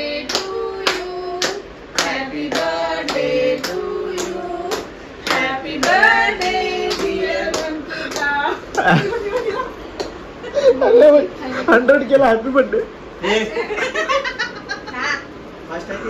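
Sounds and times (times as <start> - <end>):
group singing a birthday song: 0.0 - 9.9.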